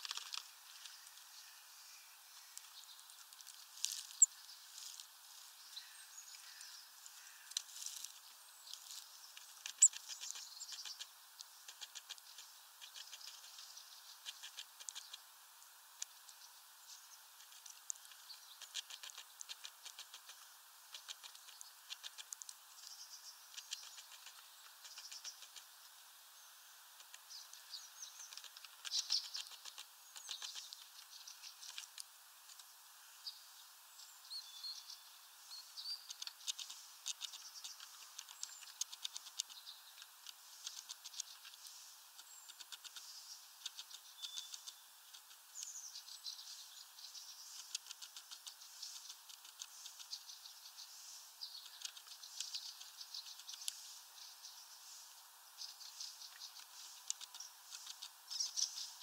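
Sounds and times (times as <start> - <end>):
small birds chirping: 0.0 - 59.0.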